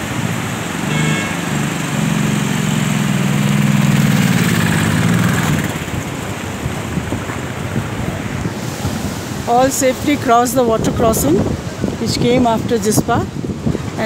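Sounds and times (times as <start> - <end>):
motorcycle engine running: 0.2 - 6.2.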